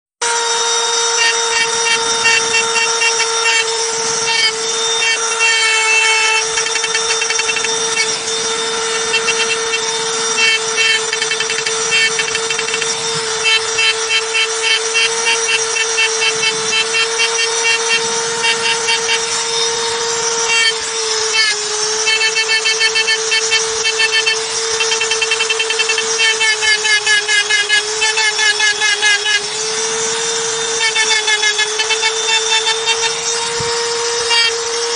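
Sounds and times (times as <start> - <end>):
rotary tool whining: 0.2 - 34.9
bit scratching stone: 1.0 - 29.5, 30.4 - 33.4.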